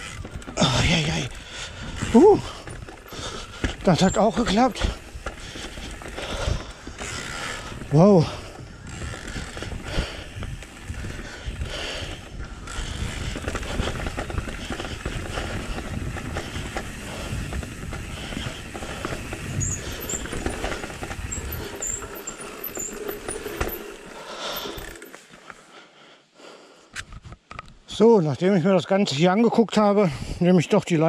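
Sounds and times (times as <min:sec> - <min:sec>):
bike tyres rolling over dirt: 0:00.0 - 0:25.7
chain and frame rattle: 0:02.4 - 0:10.0, 0:18.2 - 0:25.3.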